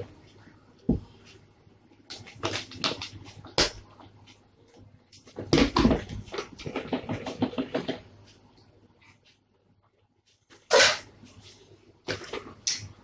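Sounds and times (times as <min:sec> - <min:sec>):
rapid plastic clattering: 0:05.4 - 0:08.1.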